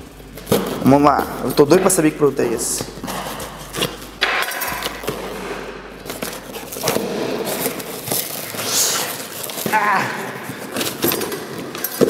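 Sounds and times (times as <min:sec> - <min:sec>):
cardboard flaps scraping: 0:02.4 - 0:11.8
cardboard and tape tearing: 0:03.0 - 0:12.0.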